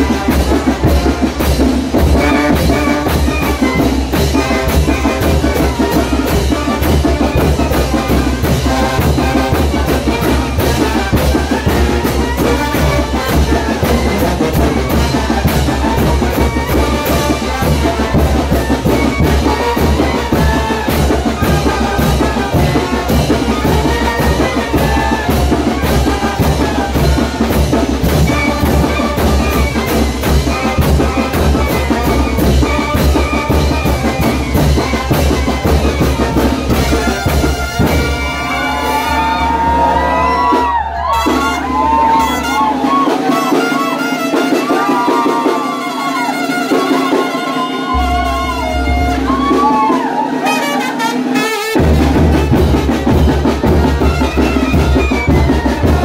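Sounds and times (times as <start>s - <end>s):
brass band playing: 0.0s - 56.0s
driving drum beat: 0.0s - 56.0s.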